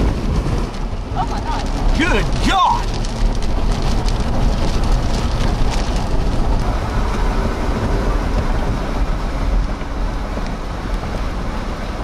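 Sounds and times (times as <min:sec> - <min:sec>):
vehicle rumbling on wet road: 0:00.0 - 0:12.0
wind: 0:00.0 - 0:12.0
raindrop ticks: 0:00.6 - 0:06.7.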